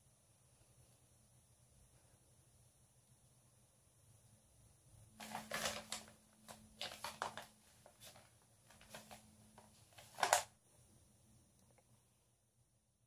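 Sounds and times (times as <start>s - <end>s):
paper rustling and crinkling: 5.2s - 10.5s.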